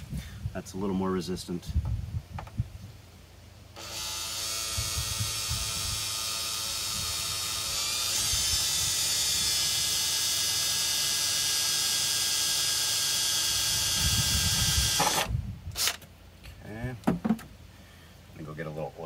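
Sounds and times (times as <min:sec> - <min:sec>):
cordless drill boring through metal: 0:03.8 - 0:16.0.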